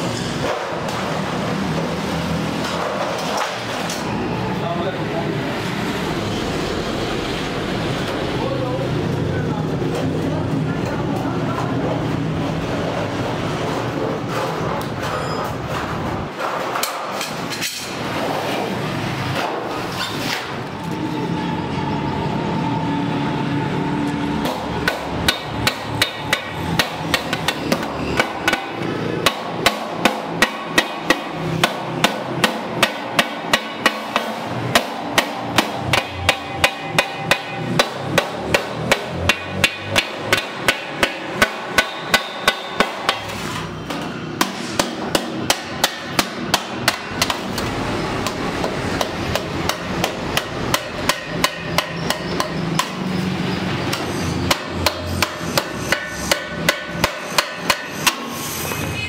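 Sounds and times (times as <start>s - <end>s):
wooden mallet beating sheet metal: 15.9s - 18.2s, 24.4s - 59.0s.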